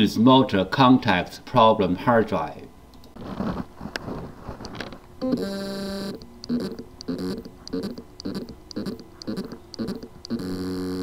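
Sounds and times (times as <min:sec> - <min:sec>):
hard drive pulsed buzz: 0:05.2 - 0:11.0.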